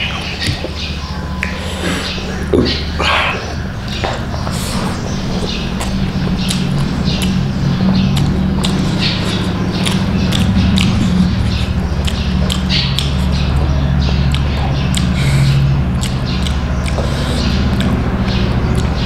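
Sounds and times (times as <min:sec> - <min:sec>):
steady low hum: 0:00.0 - 0:19.0
person chewing rice: 0:04.1 - 0:19.0.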